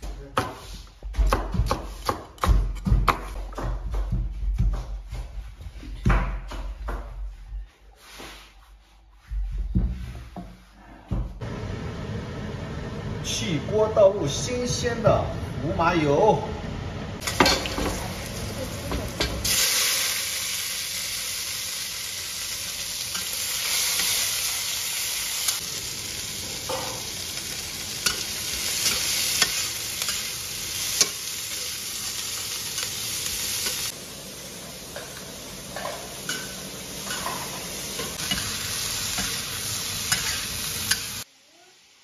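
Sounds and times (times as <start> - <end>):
vegetables sizzling in wok: 17.1 - 42.0
metal spatula scraping wok: 26.5 - 34.0, 34.8 - 41.2.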